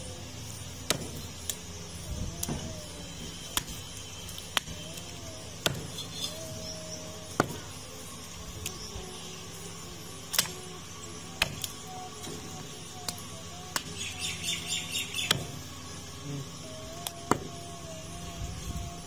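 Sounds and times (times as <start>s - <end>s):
cleaver chopping meat and bone: 0.8s - 1.6s, 3.4s - 5.0s, 5.6s - 6.4s, 7.3s - 7.7s, 10.3s - 10.6s, 11.4s - 12.5s, 15.2s - 15.6s, 17.0s - 17.6s.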